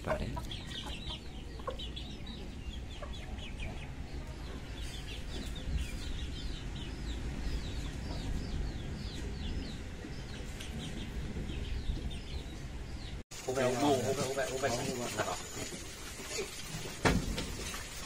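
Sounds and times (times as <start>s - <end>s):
chickens chirping: 0.0s - 18.0s.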